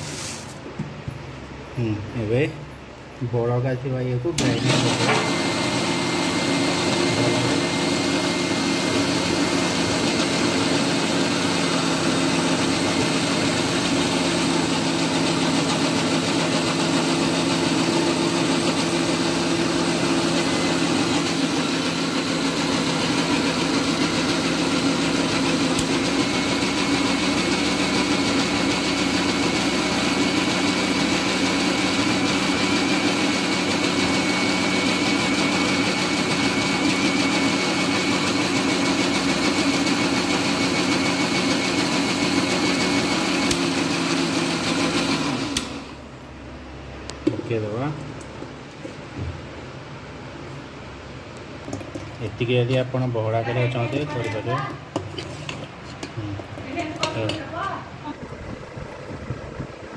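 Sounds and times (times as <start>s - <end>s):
mixer grinder running: 4.3s - 46.2s, 51.7s - 59.9s.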